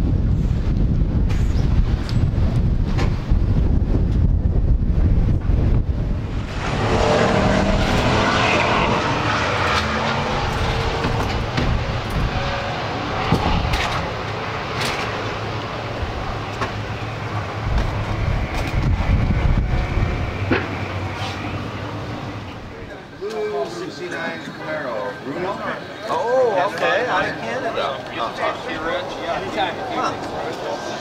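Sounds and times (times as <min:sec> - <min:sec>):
low rumble: 0:00.0 - 0:22.9.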